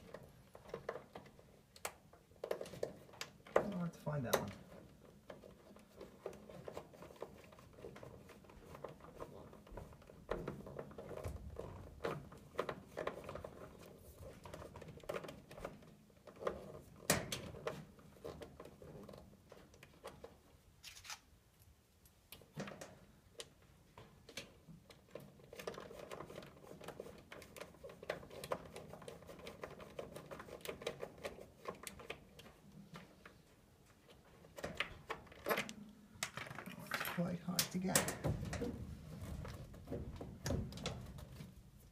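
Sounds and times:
clicks taps and rustles of hands: 0.0s - 20.6s.

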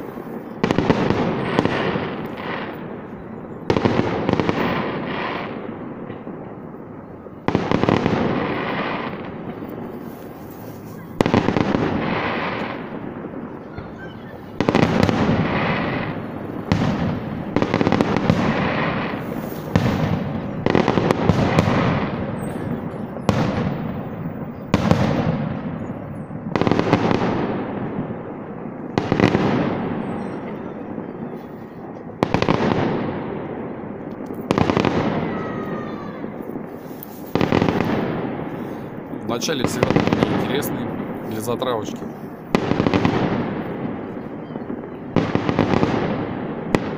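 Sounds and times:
booms echoing: 0.0s - 46.9s
firework shells bursting: 7.5s - 27.3s, 34.0s - 46.9s.

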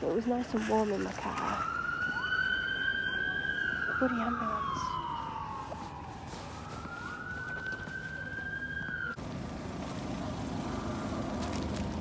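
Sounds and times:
ambulance siren wailing: 1.2s - 9.2s.

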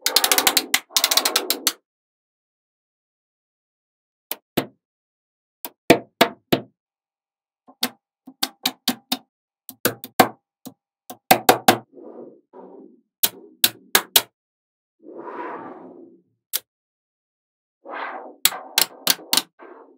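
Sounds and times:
magnetic balls clicking together: 18.5s - 19.5s.

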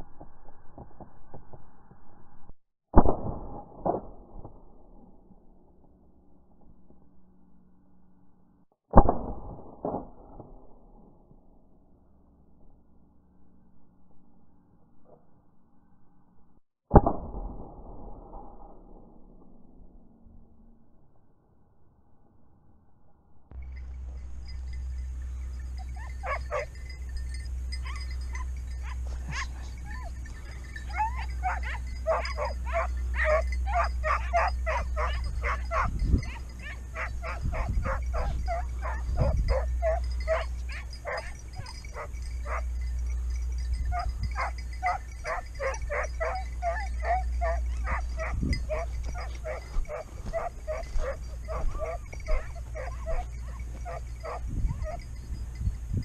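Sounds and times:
low rumble: 23.4s - 56.0s
hounds barking: 24.1s - 55.6s.

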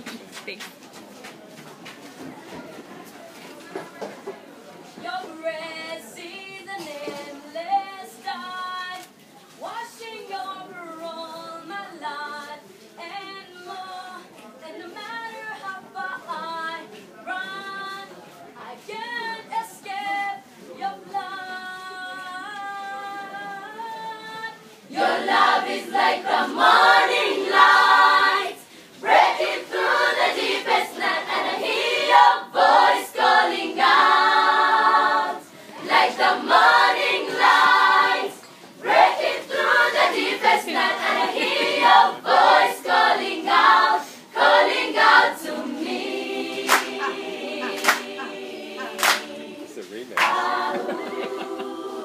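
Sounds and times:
children's choir singing: 23.2s - 52.0s.

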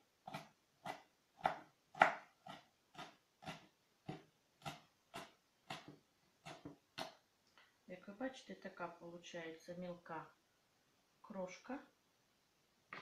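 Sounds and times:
knife chopping on wooden board: 0.3s - 7.2s.

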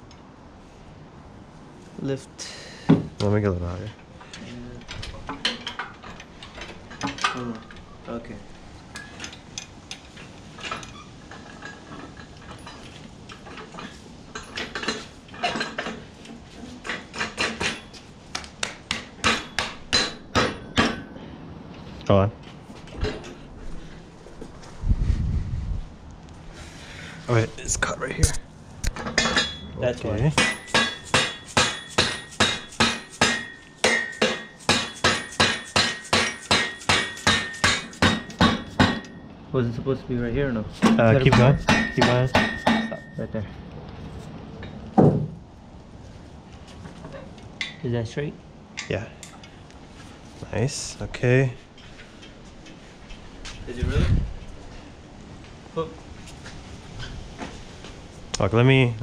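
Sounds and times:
metal clanks and clinks: 4.8s - 8.0s, 8.9s - 18.1s, 19.2s - 21.2s, 29.0s - 39.3s, 40.8s - 43.4s
hammer striking steel stand: 18.6s - 21.1s, 30.3s - 39.2s, 40.8s - 43.2s
metal ringing: 29.0s - 39.4s, 40.9s - 43.4s.

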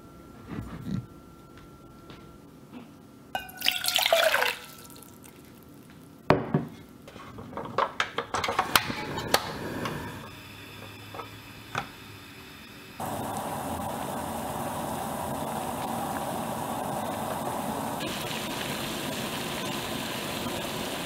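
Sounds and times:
liquid splashing into saucepan: 3.4s - 5.7s
gas burner hissing: 8.4s - 21.0s.

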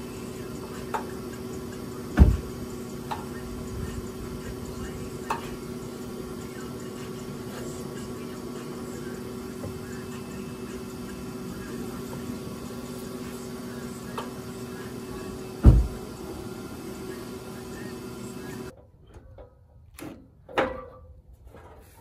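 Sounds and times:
steady low hum: 0.0s - 18.7s
car fender thump: 2.2s - 2.6s, 15.6s - 16.0s.

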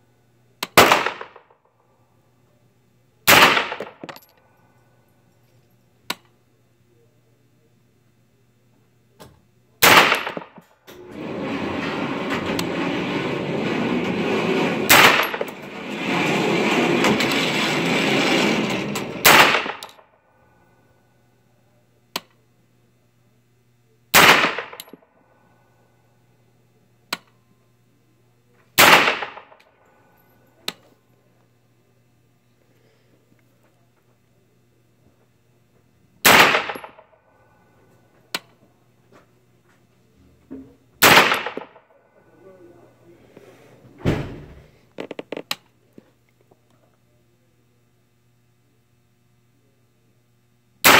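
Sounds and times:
gunshots with ring-out: 0.7s - 1.5s, 3.3s - 4.1s, 9.8s - 10.6s, 14.8s - 16.8s, 17.6s - 20.0s, 24.1s - 24.9s, 28.8s - 29.6s, 36.2s - 37.1s, 41.0s - 41.8s
fainter gunshot cracks: 19.2s - 19.9s, 24.2s - 24.8s, 28.8s - 29.5s, 36.2s - 37.0s, 41.0s - 41.7s.

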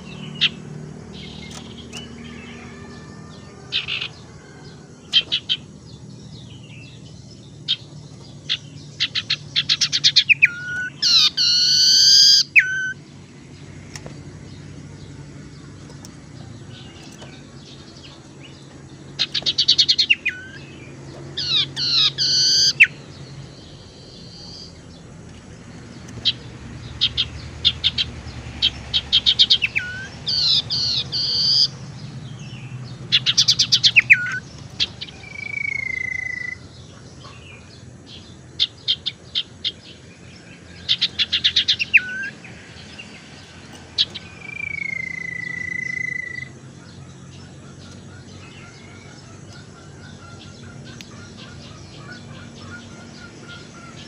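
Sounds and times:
bird long whistle: 10.4s - 13.0s, 35.2s - 36.6s, 44.4s - 46.5s.

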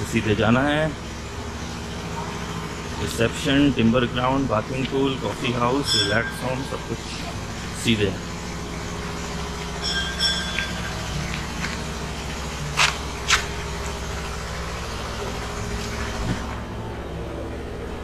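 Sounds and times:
vehicle engine running: 0.0s - 18.0s
short high tones: 5.8s - 6.9s, 9.8s - 11.2s.

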